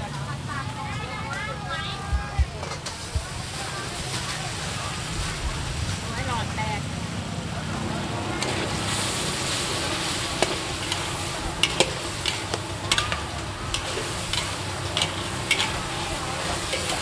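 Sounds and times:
food sizzling in oil: 0:08.1 - 0:17.0
metal spatulas scraping a wok: 0:08.4 - 0:17.0.

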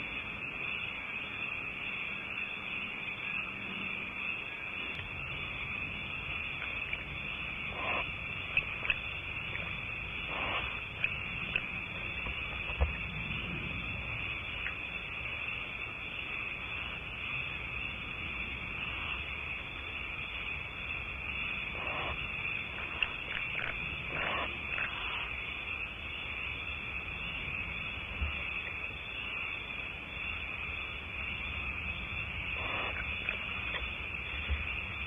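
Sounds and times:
steady high hiss: 0:00.0 - 0:35.0
faint rasping sounds: 0:07.6 - 0:13.0.

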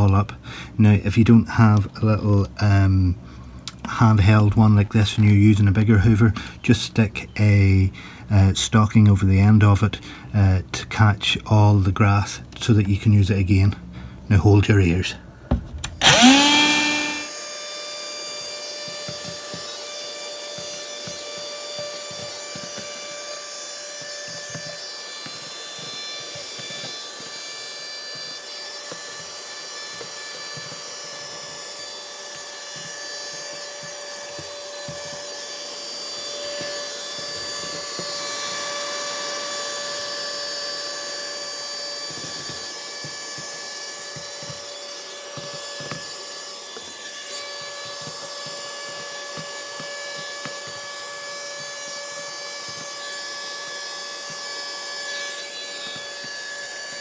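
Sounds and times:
handheld vacuum cleaner whining: 0:15.8 - 0:57.0.

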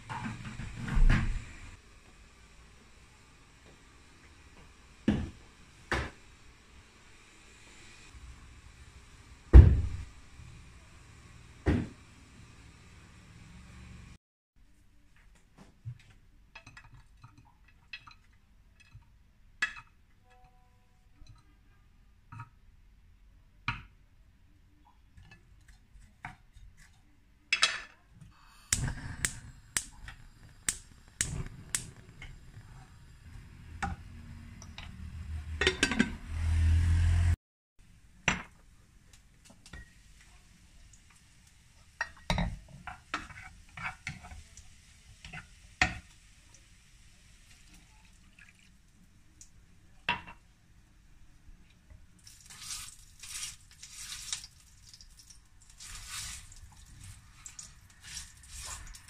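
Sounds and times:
faint steady hiss: 0:28.2 - 0:34.8, 0:37.8 - 0:59.0
water poured into pot: 0:39.7 - 0:49.6, 0:52.2 - 0:59.0.

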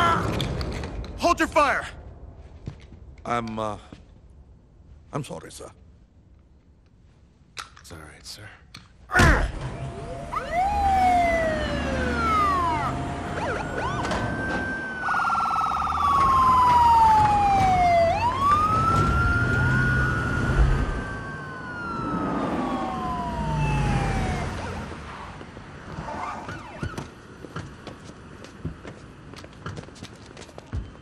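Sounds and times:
vehicle engines rumbling: 0:09.4 - 0:29.6
police sirens wailing: 0:09.6 - 0:25.4, 0:26.0 - 0:27.2
siren fast warbling yelp: 0:10.0 - 0:25.4.

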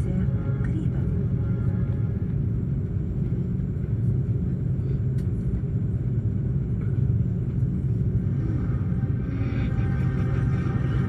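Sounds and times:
airplane cabin engine rumble: 0:00.0 - 0:11.0.

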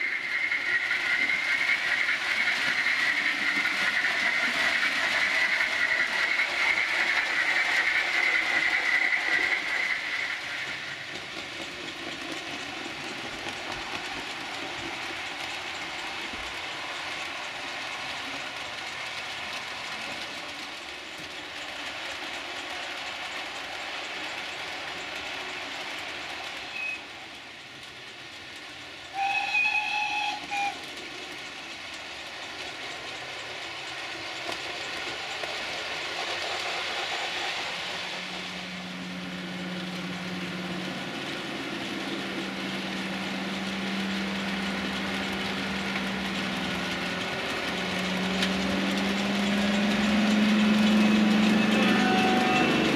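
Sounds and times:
steam locomotive whistle: 0:29.1 - 0:30.8, 0:50.4 - 0:52.9.

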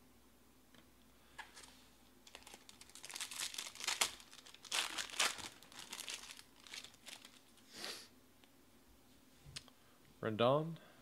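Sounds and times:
foil wrapper tearing and crinkling: 0:02.3 - 0:07.5.

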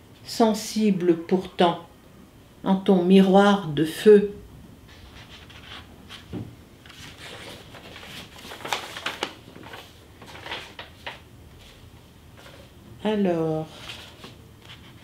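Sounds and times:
book pages rustling: 0:04.9 - 0:11.8, 0:13.6 - 0:15.0.

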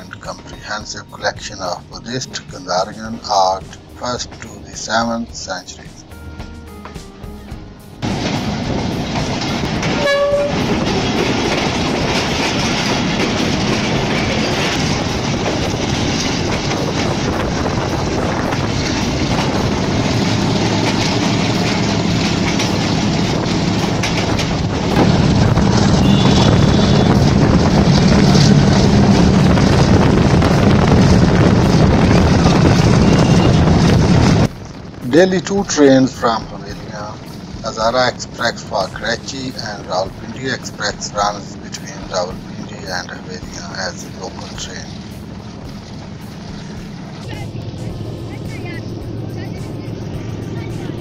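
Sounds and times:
train rumble and wheel clatter: 0:00.0 - 0:51.0
train horn toot: 0:09.8 - 0:10.9, 0:25.3 - 0:29.7, 0:32.4 - 0:34.4.

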